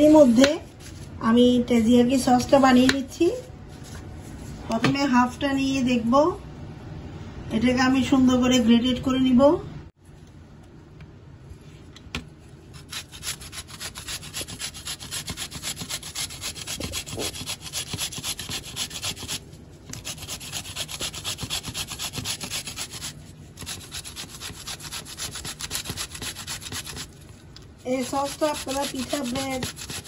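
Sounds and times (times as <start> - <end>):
cucumber grating on metal grater: 12.7 - 27.2, 27.9 - 30.0.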